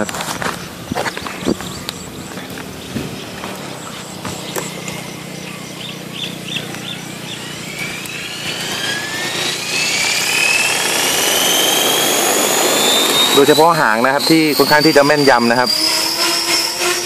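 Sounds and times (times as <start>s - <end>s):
rc helicopter motor whine: 0.0s - 17.0s.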